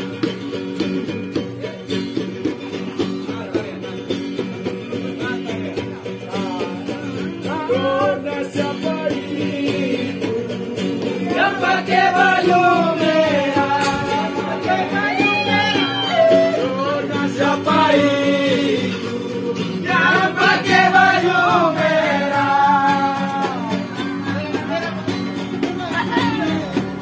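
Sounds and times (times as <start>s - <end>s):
acoustic guitars strummed: 0.0s - 27.0s
person singing: 6.2s - 24.2s.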